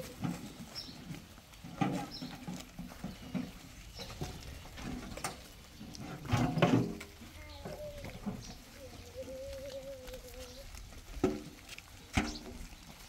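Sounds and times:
livestock calls: 7.2 - 11.0.

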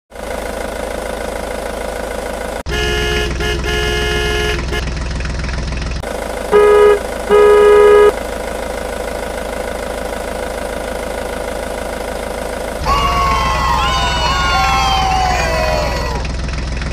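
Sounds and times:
engine rumble: 0.1 - 16.9
vehicle horn honking: 2.7 - 4.9, 6.5 - 8.2.

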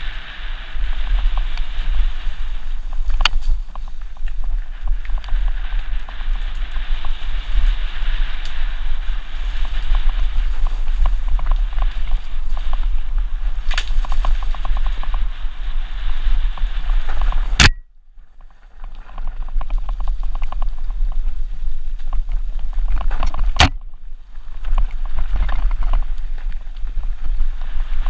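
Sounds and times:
wind buffeting microphone: 0.0 - 28.0
bike clattering over stones: 18.3 - 28.0.

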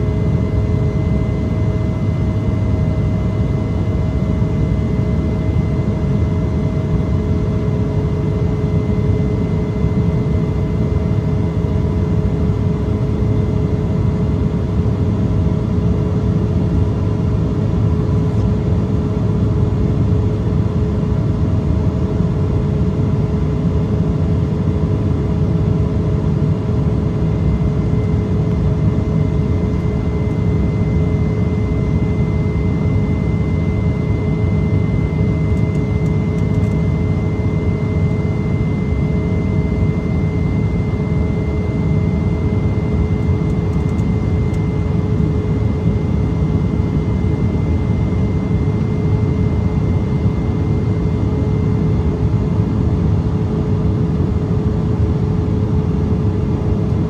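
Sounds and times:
airplane cabin roar: 0.0 - 57.0.

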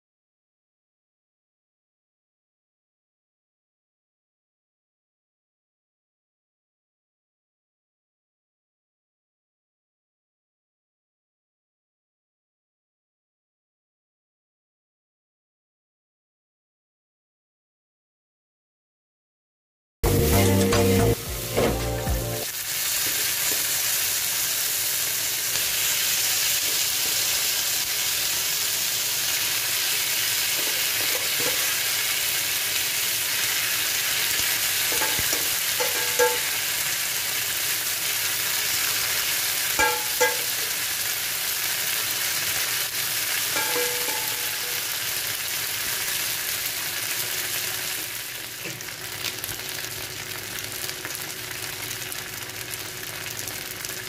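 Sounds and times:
meat sizzling on platter: 22.4 - 54.0.

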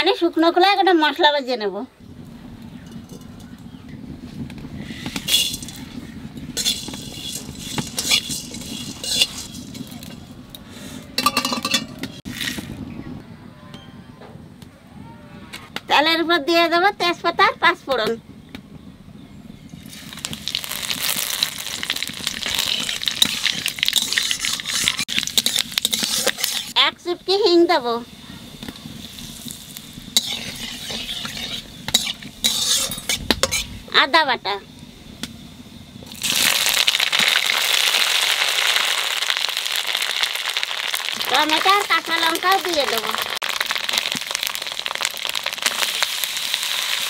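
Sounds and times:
seeds sizzling in hot oil: 0.0 - 12.9, 19.5 - 47.0
seeds popping: 4.4 - 10.3, 19.8 - 26.8, 36.1 - 47.0
metal spatula stirring: 5.0 - 12.6, 20.5 - 26.8, 29.1 - 33.7.

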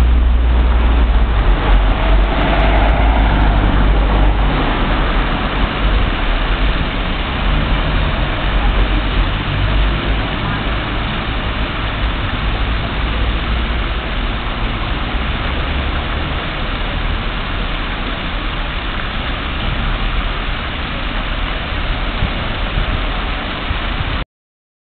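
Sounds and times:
low rumble: 0.0 - 17.4
fountain water splashing: 0.0 - 24.2
road traffic: 0.0 - 24.2.

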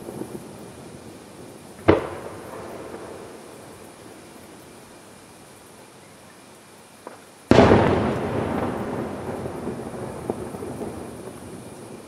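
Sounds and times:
firework boom: 7.5 - 11.5.

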